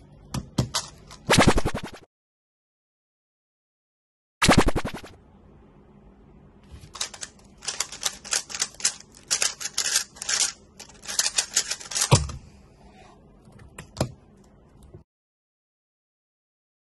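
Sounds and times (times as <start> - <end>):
puzzle cube clicking: 7.0 - 12.1.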